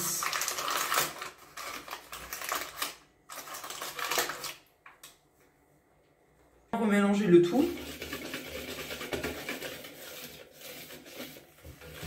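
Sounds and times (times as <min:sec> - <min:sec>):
cardboard box crinkling and rustling: 0:00.2 - 0:04.5.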